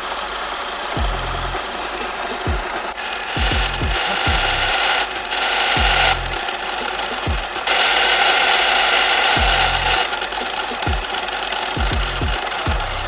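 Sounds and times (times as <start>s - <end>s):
drill press whining through steel: 0.0s - 13.0s
background music beat: 1.0s - 13.0s.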